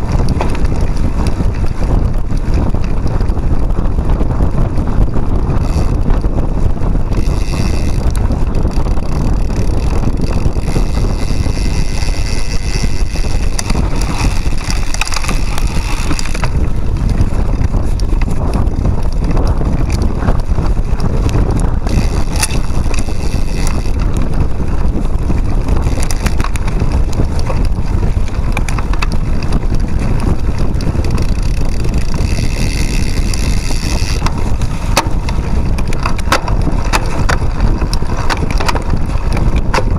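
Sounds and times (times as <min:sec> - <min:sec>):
bike rattles and knocks: 0:00.0 - 0:39.9
bike tyres rumbling on trail: 0:00.0 - 0:39.9
wind noise on microphone: 0:00.0 - 0:39.9.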